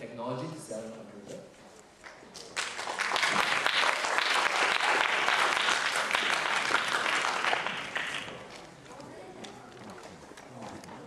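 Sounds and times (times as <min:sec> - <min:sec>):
audience applauding: 0:02.0 - 0:08.7.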